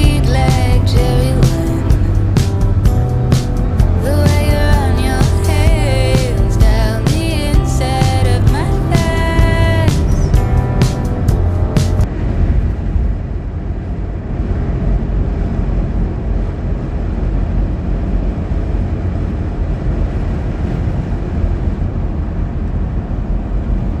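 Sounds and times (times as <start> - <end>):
car engine: 0.0 - 24.0
tyre and road noise: 0.0 - 24.0.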